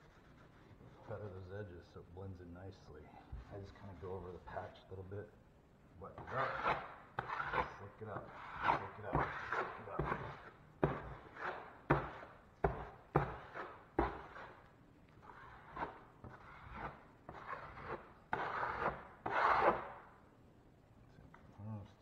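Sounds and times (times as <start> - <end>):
drywall knife scraping: 6.1 - 20.1.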